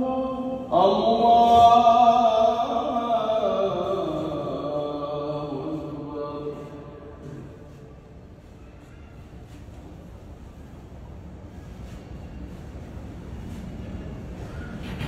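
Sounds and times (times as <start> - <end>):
man chanting over loudspeaker: 0.0 - 7.9.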